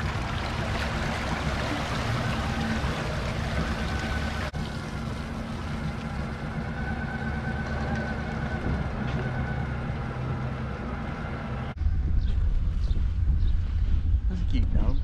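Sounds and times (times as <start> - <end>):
water running off hull: 0.0 - 11.7.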